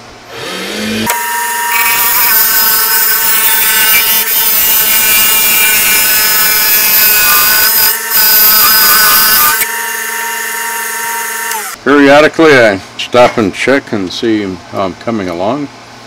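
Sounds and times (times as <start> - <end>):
lathe motor whine: 0.3 - 11.8
turning tool cutting wood: 0.3 - 11.8.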